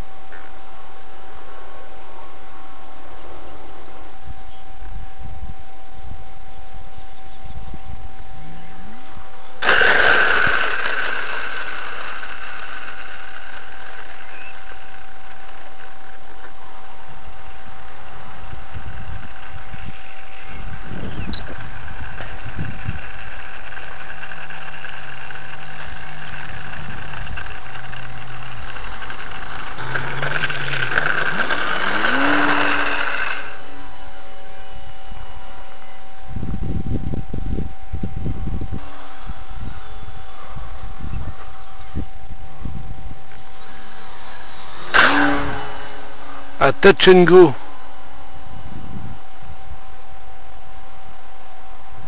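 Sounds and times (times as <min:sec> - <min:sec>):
motor running: 0:06.3 - 0:52.0
rush of air: 0:09.6 - 0:13.6.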